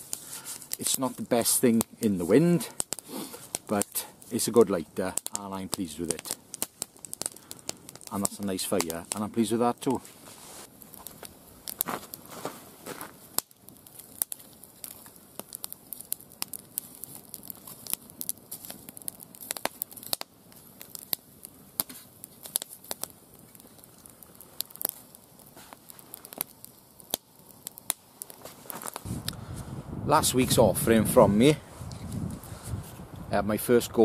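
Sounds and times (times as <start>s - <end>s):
campfire crackling and popping: 0.0s - 34.0s.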